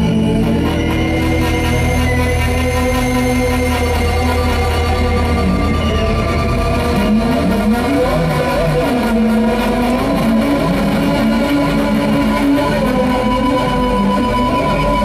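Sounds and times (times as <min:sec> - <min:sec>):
electronic noise music: 0:00.0 - 0:15.0.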